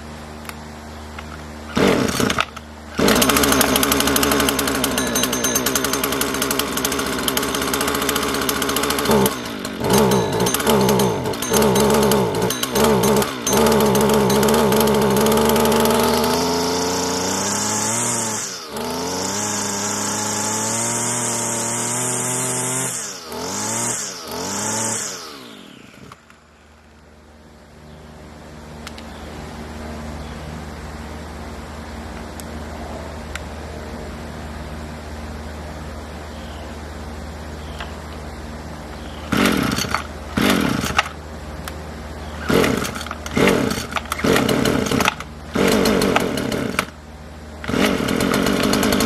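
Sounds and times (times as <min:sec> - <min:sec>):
string trimmer pull-started: 0:00.4 - 0:26.5, 0:39.0 - 0:47.0, 0:47.6 - 0:49.0
string trimmer engine revving: 0:01.2 - 0:26.5, 0:39.0 - 0:49.0.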